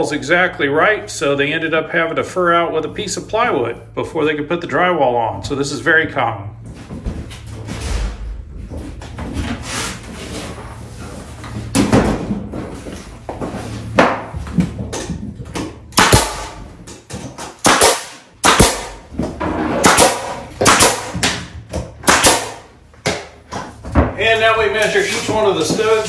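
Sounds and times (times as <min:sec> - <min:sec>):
nail gun firing into wood: 0:15.9 - 0:16.6, 0:17.4 - 0:19.0, 0:19.8 - 0:23.3.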